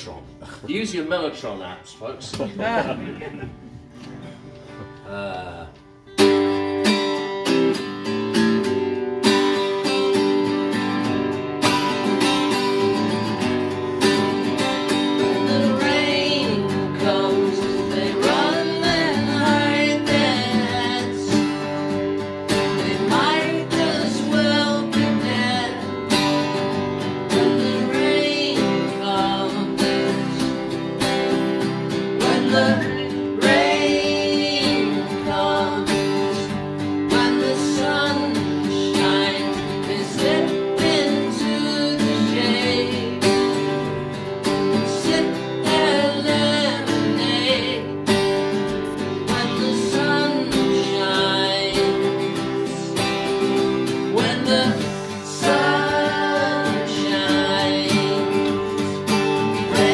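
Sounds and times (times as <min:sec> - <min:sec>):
acoustic guitars strumming: 0:00.0 - 0:59.9
man singing: 0:14.9 - 0:21.8, 0:22.6 - 0:26.3, 0:27.3 - 0:30.7, 0:32.2 - 0:43.4, 0:44.7 - 0:48.0, 0:48.9 - 0:59.9.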